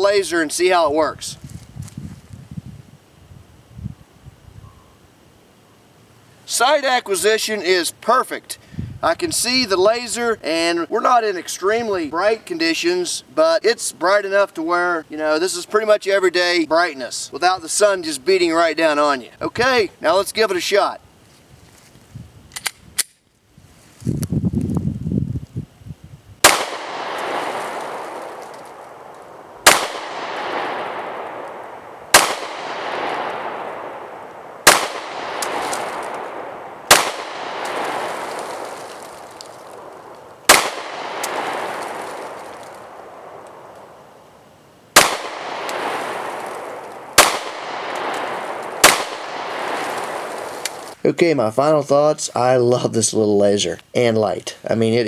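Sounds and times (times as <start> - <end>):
pistol shots: 26.4 - 43.8, 44.9 - 51.0.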